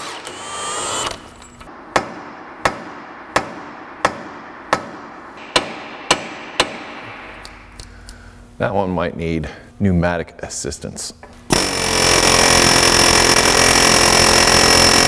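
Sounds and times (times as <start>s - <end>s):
sharp metallic knocks: 1.8s - 7.9s
impact wrench running: 11.5s - 15.0s.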